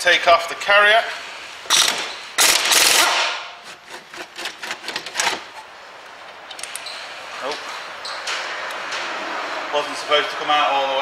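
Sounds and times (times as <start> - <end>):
metal bolt clicks and rattles: 1.7 - 3.0, 6.5 - 6.9
pneumatic impact wrench hammering: 1.7 - 5.6.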